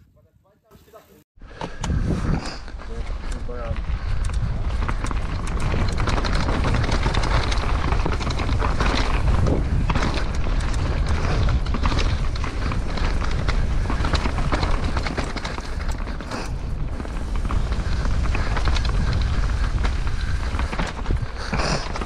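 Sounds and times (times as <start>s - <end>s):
bike rattling: 1.4s - 22.0s
wind buffeting microphone: 1.4s - 22.0s
tyres rolling over dirt and leaves: 2.7s - 22.0s.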